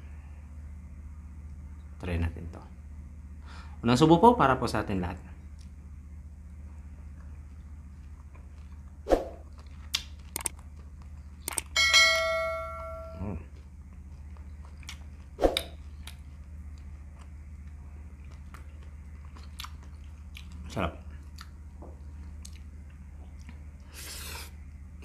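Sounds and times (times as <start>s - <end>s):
steady low hum: 0.0s - 25.0s
bright bell ding: 11.8s - 13.2s
wet mouth chewing clicks: 19.4s - 20.6s.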